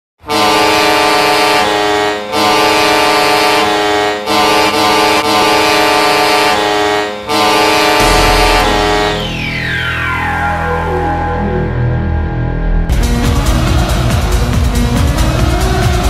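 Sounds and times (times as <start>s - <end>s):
hockey goal horn blasts: 0.2s - 9.6s.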